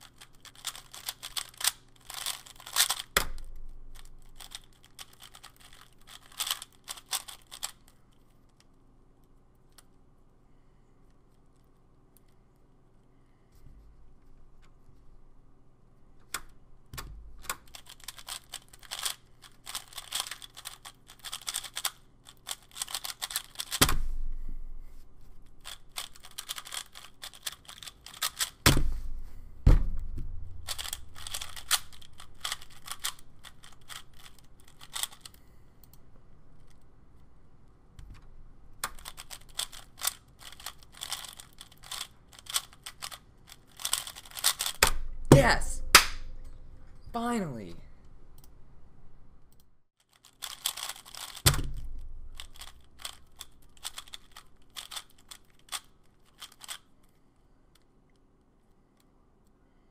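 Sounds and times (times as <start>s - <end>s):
fast plastic clicking of puzzle cube: 0.0s - 8.7s, 17.0s - 24.0s, 25.5s - 28.7s, 30.5s - 35.4s, 38.8s - 45.1s, 50.0s - 56.9s.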